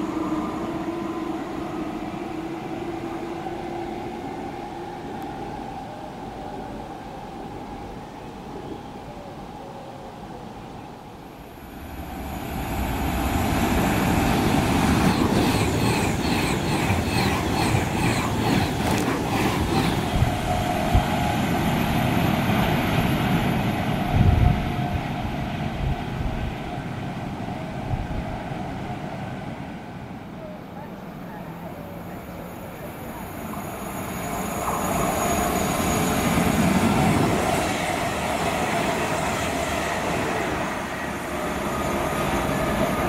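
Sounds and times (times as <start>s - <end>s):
electric train passing at speed: 0.0s - 43.0s
wheels clicking on rails: 14.4s - 20.9s.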